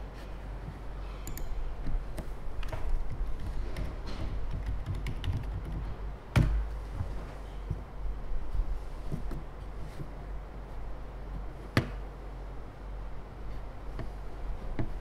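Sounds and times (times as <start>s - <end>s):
low steady hum: 0.0s - 15.0s
keyboard and mouse clicks: 1.2s - 5.9s.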